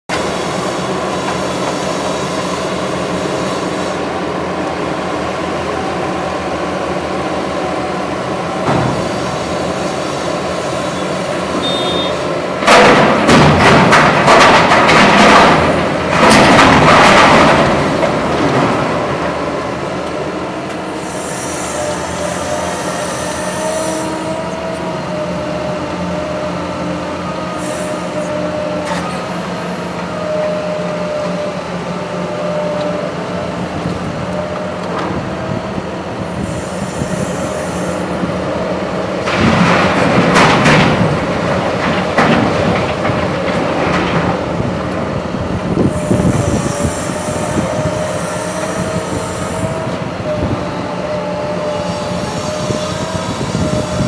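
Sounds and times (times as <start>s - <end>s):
excavator diesel engine running: 0.1s - 54.0s
rubble crashing into steel trailer: 12.7s - 19.0s.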